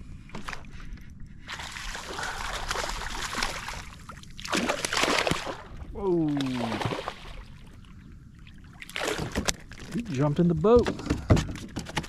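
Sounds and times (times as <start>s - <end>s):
fish splashing at water surface: 1.6s - 7.4s.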